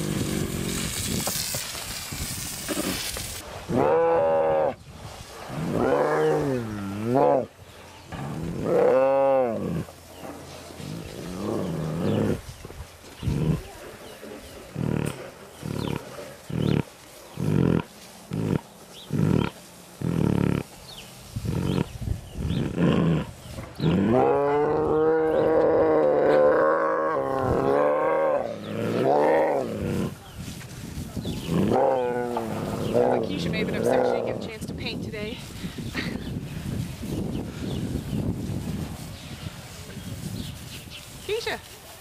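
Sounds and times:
tiger vocalizing: 10.8 - 12.5, 13.2 - 20.7, 21.4 - 30.2.

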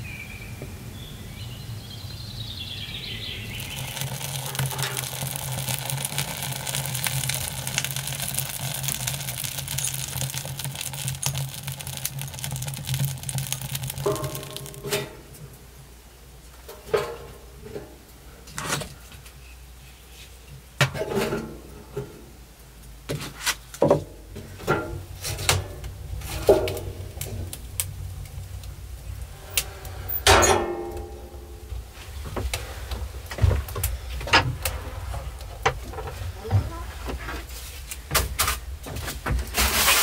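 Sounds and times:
scraping in wood stove: 3.4 - 15.4, 23.1 - 40.0
firewood knocking and clattering: 3.6 - 15.2, 23.1 - 31.5, 32.1 - 39.6.

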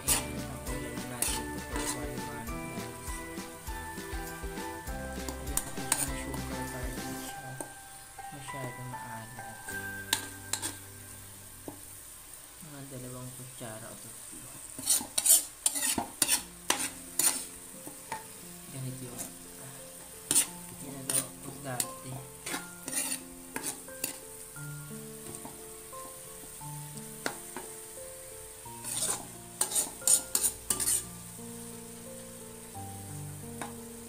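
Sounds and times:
metal spoon scraping a wok: 0.0 - 0.4, 1.0 - 2.2, 5.3 - 6.4, 9.6 - 10.9, 14.8 - 18.3, 20.2 - 24.3, 28.8 - 31.1
food sizzling: 0.0 - 34.0.

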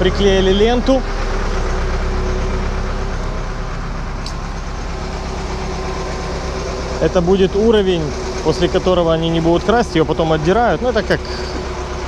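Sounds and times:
steady mechanical drone: 0.0 - 12.0.

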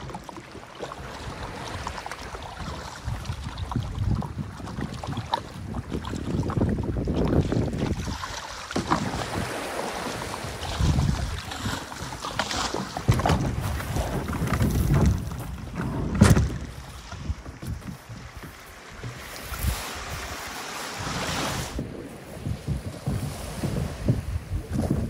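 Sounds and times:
sea water washing over pebbles: 0.0 - 25.0
wind buffeting microphone: 1.2 - 25.0
low knocks: 14.2 - 19.3.

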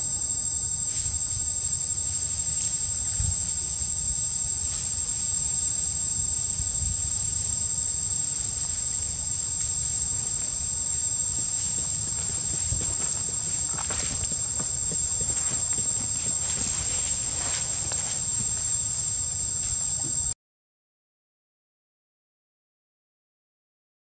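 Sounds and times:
insects droning: 0.0 - 20.4.

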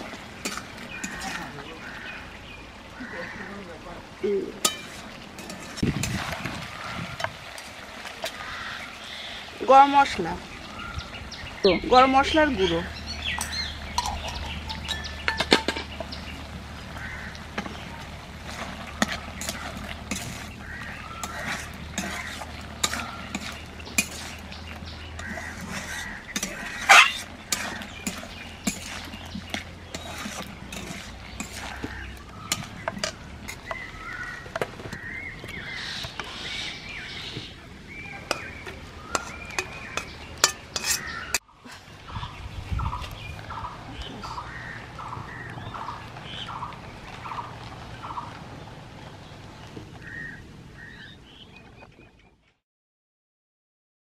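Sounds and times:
metal spatula scraping a pan: 0.0 - 1.5, 4.6 - 8.5, 18.4 - 33.9, 38.2 - 41.9.

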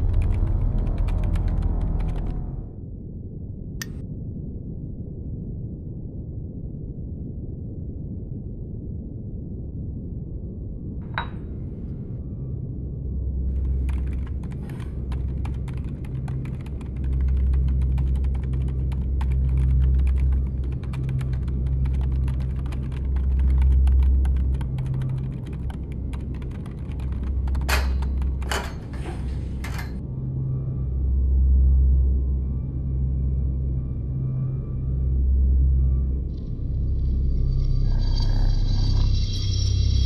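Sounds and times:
typing on a keyboard: 0.0 - 2.4, 13.7 - 28.6.

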